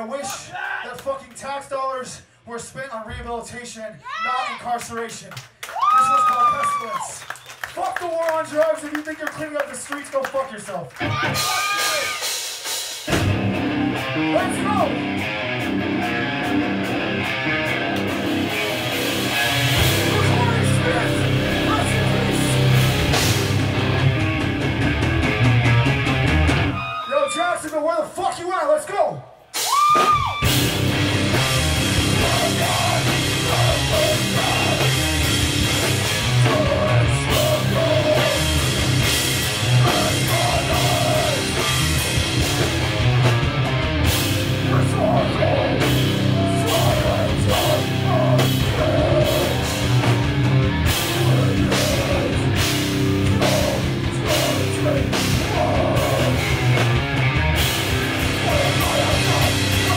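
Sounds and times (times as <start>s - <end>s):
pounding drum kit: 11.0s - 26.8s, 29.6s - 59.9s
live heavy metal band playing: 11.0s - 26.9s, 29.6s - 59.9s
rock vocals: 13.1s - 27.0s, 30.0s - 59.9s.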